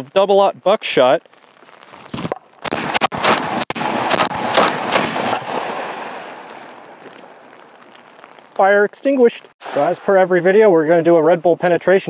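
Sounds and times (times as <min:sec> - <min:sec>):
gunshot echo: 0:02.6 - 0:06.1
shotgun shots: 0:02.6 - 0:06.1.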